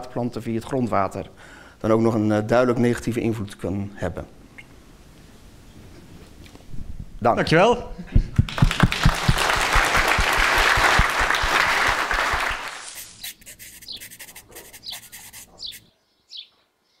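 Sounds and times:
audience applauding: 8.4 - 13.0.

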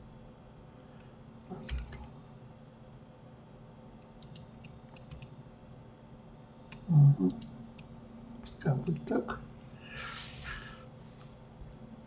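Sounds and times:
low steady hum: 0.0 - 12.0
keyboard and mouse clicks: 1.6 - 2.1, 4.1 - 5.3, 6.7 - 7.9.

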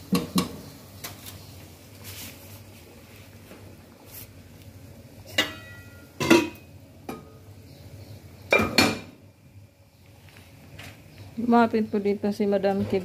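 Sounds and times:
metal cookware clanking: 5.2 - 7.4, 8.5 - 9.1.

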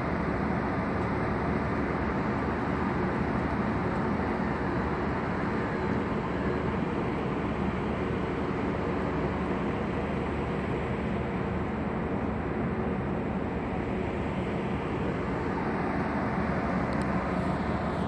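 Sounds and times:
road traffic rumble: 0.0 - 18.0.

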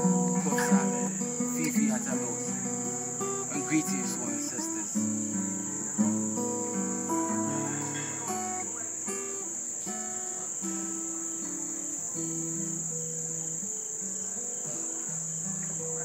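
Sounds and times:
slow music of held notes: 0.0 - 9.2
crickets chirping: 0.0 - 16.0.

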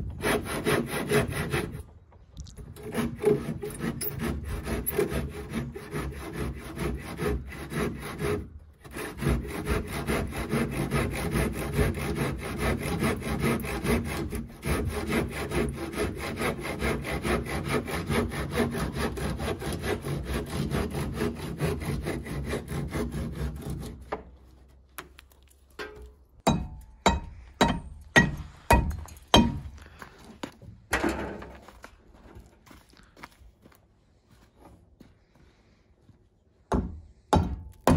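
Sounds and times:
saw cutting wood: 0.0 - 24.5
sharp knocks: 25.8 - 29.7.

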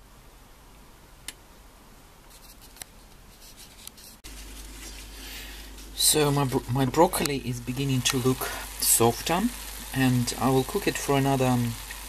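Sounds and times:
hiss of water heating in saucepan: 4.3 - 12.0.

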